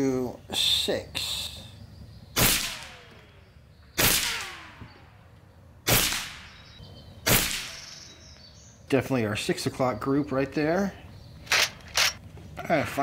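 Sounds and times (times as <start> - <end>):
air rifle shots: 2.4 - 3.4, 4.0 - 5.2, 5.8 - 8.1, 11.4 - 12.2.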